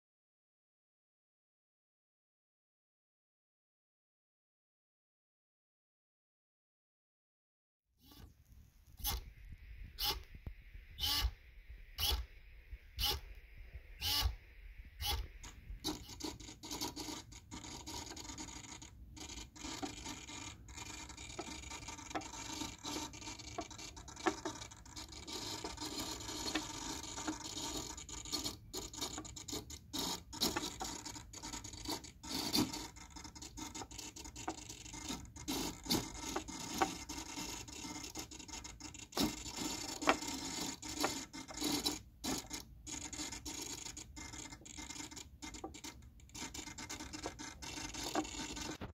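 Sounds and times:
servomotors buzzing: 10.0s - 10.3s, 11.0s - 11.4s, 12.0s - 12.3s, 13.0s - 13.4s, 14.0s - 14.4s, 15.0s - 48.9s.

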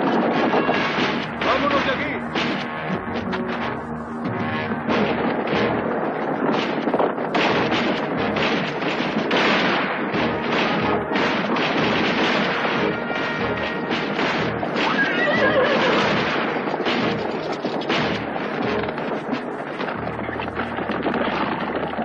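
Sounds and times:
gunshots: 0.0s - 22.0s
horses galloping: 0.0s - 22.0s
dramatic film music: 0.4s - 21.9s
horse whinnying: 14.8s - 16.3s.

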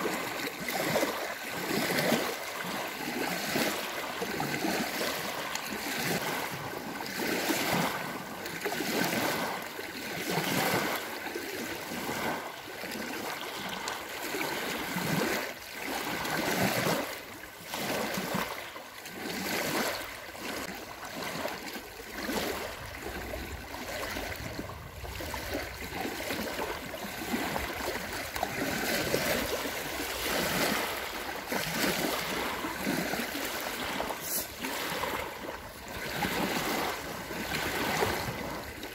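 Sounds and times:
small waves lapping on shore: 0.0s - 38.9s.

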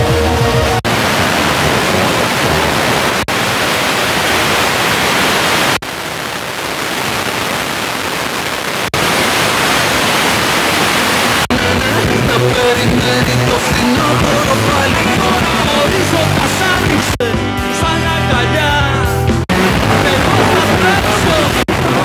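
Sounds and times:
radio static hiss: 0.8s - 12.8s, 19.5s - 22.0s.

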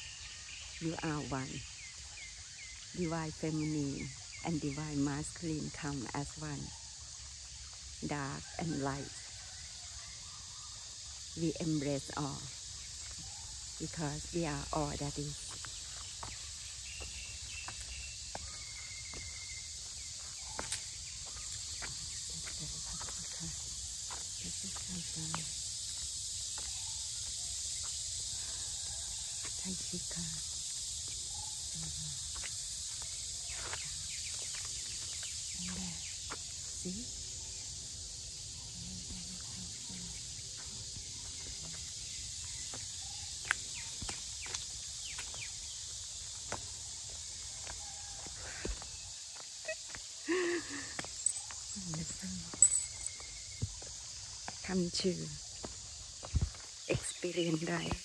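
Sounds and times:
crickets and insects chirping: 0.0s - 58.0s
footsteps on stone path: 15.5s - 26.8s, 42.7s - 54.6s, 55.5s - 58.0s.

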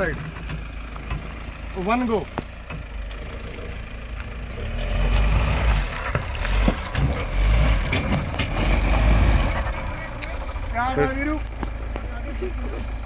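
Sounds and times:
stones knocking under tyres: 0.0s - 3.3s, 5.7s - 9.5s
off-road vehicle engine pulling: 0.0s - 13.0s.

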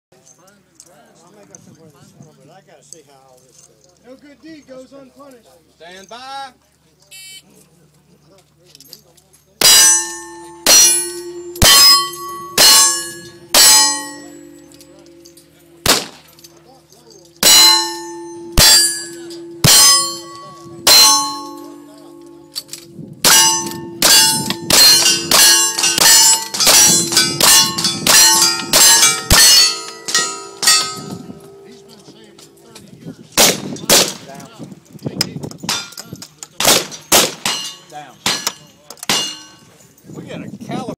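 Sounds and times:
steel target ringing: 9.6s - 32.6s, 36.7s - 39.7s.

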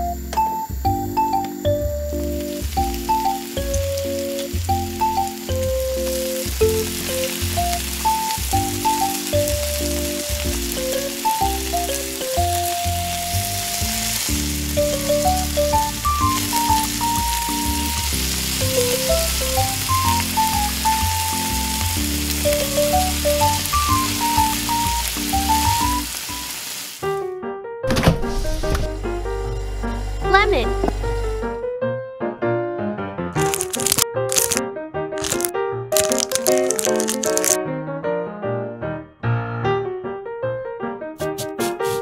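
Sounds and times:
background music with bass: 0.0s - 25.8s, 27.9s - 31.8s
chicken deep-frying in hot oil: 0.1s - 27.2s, 33.4s - 34.6s, 35.2s - 37.6s.

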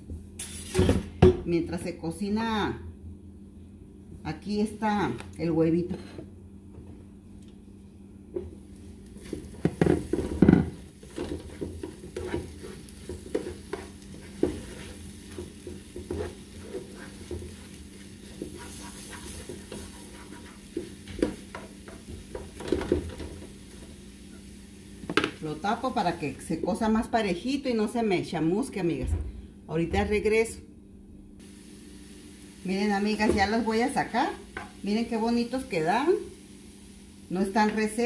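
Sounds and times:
food sizzling: 8.4s - 26.8s, 31.4s - 38.0s
spatula scraping frying pan: 9.2s - 24.5s.

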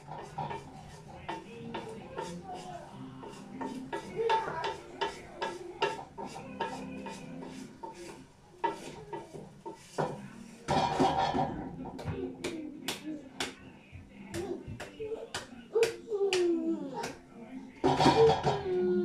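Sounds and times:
wooden spoon knocking metal pot: 0.0s - 12.6s, 17.8s - 18.8s.

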